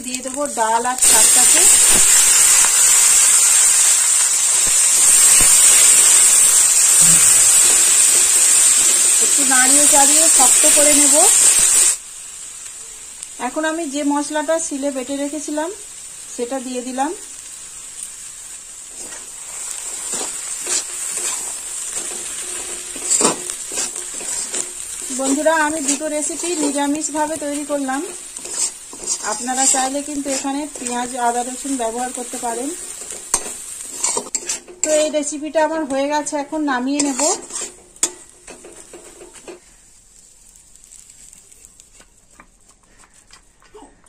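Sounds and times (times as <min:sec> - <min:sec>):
greens sizzling in hot oil: 0:00.0 - 0:43.5
metal spatula scraping pan: 0:18.9 - 0:35.1, 0:37.0 - 0:39.7.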